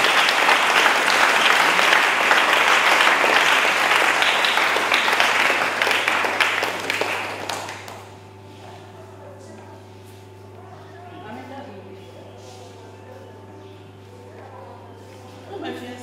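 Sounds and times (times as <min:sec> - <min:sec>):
congregation clapping: 0:00.0 - 0:08.5.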